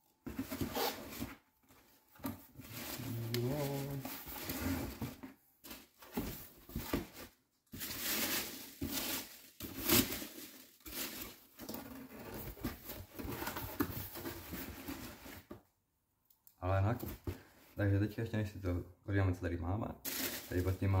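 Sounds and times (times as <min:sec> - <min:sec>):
rustling foam packing peanuts: 0:00.1 - 0:15.5, 0:20.0 - 0:21.0.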